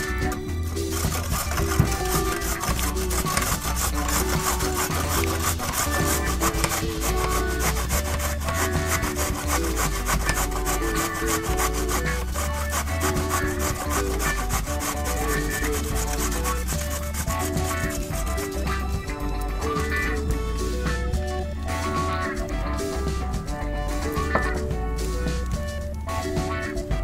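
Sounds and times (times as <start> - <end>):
background music: 0.0 - 27.0
carrot rasping on metal grater: 0.1 - 18.6.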